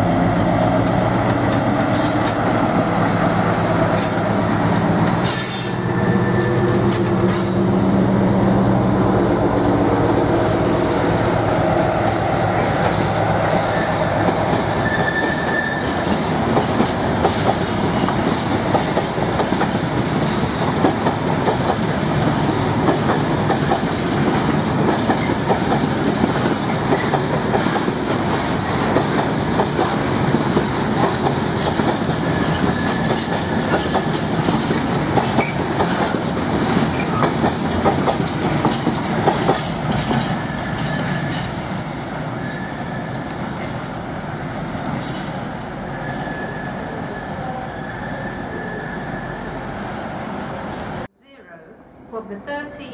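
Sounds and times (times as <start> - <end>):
train wheels clattering: 0.3 - 7.7, 12.0 - 43.0
wheel squeals: 14.8 - 16.1, 42.4 - 43.2, 45.0 - 49.6.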